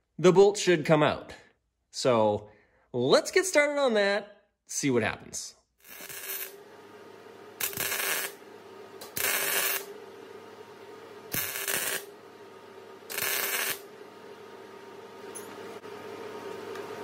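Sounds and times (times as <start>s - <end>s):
welder arcing: 5.8s - 6.6s, 7.6s - 8.4s, 9.0s - 10.0s, 11.3s - 12.1s, 13.0s - 14.0s.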